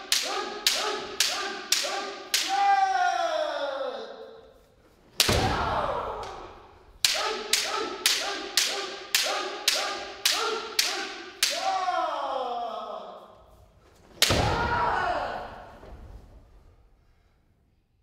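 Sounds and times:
person shouting: 0:00.1 - 0:04.5, 0:05.4 - 0:13.4, 0:14.2 - 0:15.8
bamboo sword strikes: 0:05.2 - 0:11.8, 0:14.1 - 0:14.9.

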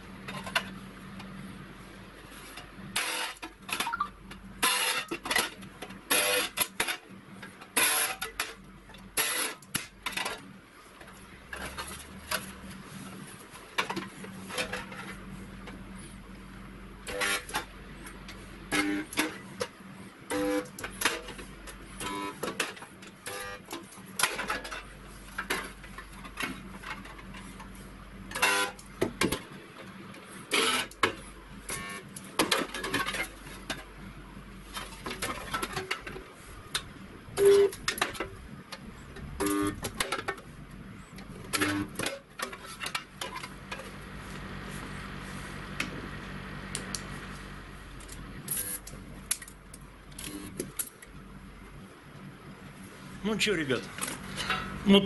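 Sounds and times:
steady low hum: 0:10.0 - 0:55.0.

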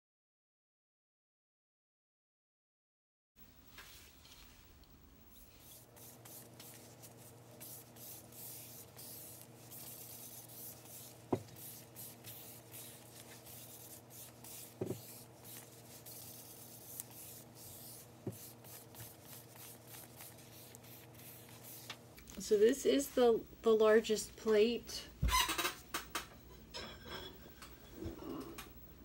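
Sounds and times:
steady low hum: 0:03.4 - 0:29.0
fingers rubbing on glazed plate: 0:05.3 - 0:21.9.

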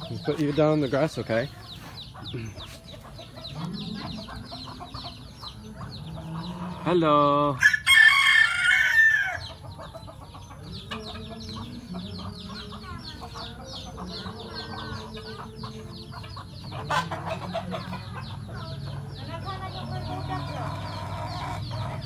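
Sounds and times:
chicks peeping: 0:00.0 - 0:22.0
hens clucking: 0:00.0 - 0:22.0
rooster crowing: 0:07.6 - 0:09.4.

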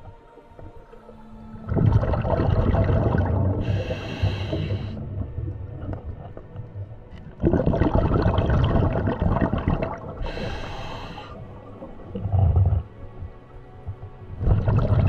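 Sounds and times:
exhaled bubbles underwater: 0:01.6 - 0:13.3, 0:14.3 - 0:15.0
regulator hissing inhale: 0:03.6 - 0:05.1, 0:10.2 - 0:11.4.

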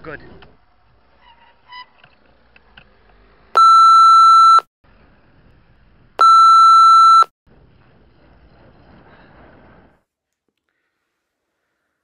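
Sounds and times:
electronic censor bleeps: 0:03.6 - 0:04.7, 0:06.2 - 0:07.3.

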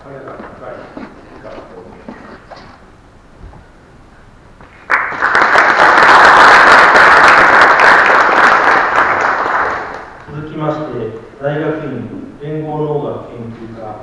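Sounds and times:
audience applauding: 0:04.8 - 0:10.3.

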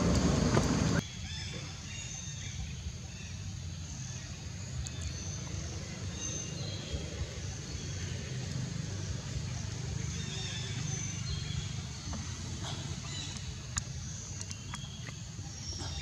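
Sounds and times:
steady low rumble: 0:00.0 - 0:01.0.

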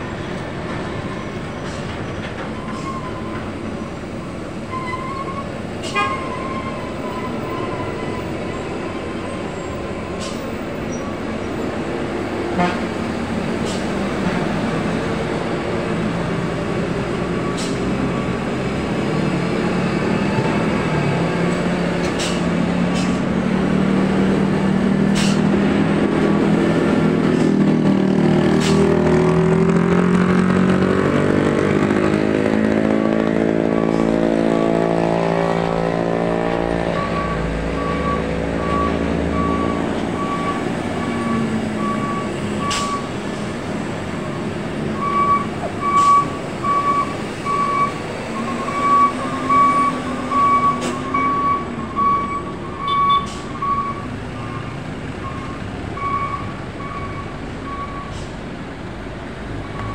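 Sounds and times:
heavy diesel truck engines: 0:00.0 - 0:59.9.

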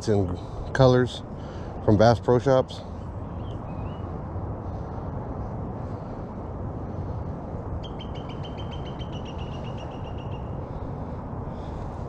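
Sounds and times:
low background rumble: 0:00.0 - 0:12.0
bird trilling: 0:07.8 - 0:10.6.

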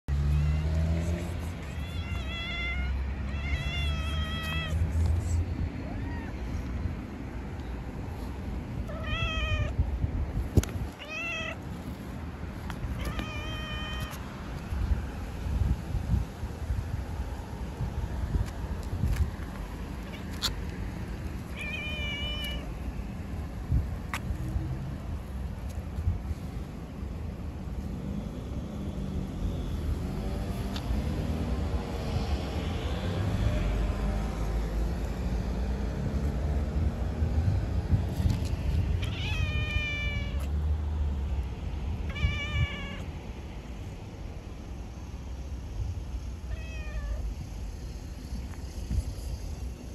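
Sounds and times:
cat meowing: 0:01.6 - 0:04.8, 0:05.8 - 0:06.7, 0:08.8 - 0:09.8, 0:10.9 - 0:11.6, 0:13.0 - 0:14.2, 0:21.5 - 0:22.7, 0:39.0 - 0:40.5, 0:42.1 - 0:43.1, 0:46.5 - 0:47.3.

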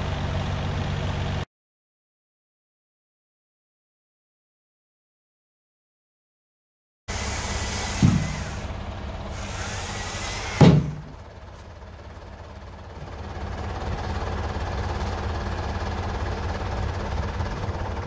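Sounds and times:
diesel engine idling: 0:00.0 - 0:01.5, 0:07.1 - 0:18.0
chainsaw cutting log: 0:07.1 - 0:11.1.

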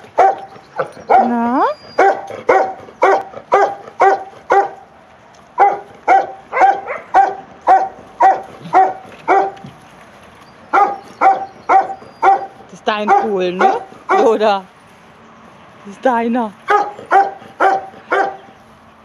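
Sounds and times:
dog barking: 0:00.2 - 0:01.4, 0:02.0 - 0:04.8, 0:05.6 - 0:09.6, 0:10.7 - 0:14.4, 0:16.7 - 0:18.5.

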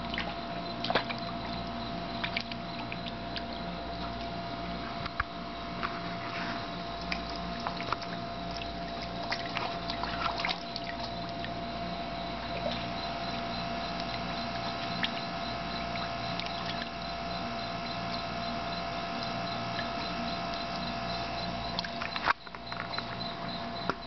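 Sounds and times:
steady hum: 0:00.0 - 0:24.0
water splashing: 0:07.0 - 0:22.3.

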